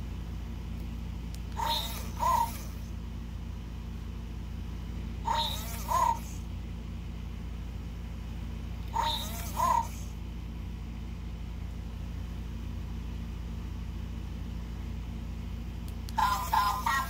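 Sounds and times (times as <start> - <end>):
air conditioner humming: 0.0 - 17.0
toy electronic voice chirping: 1.6 - 2.8, 5.2 - 6.4, 8.9 - 10.1, 16.2 - 17.0.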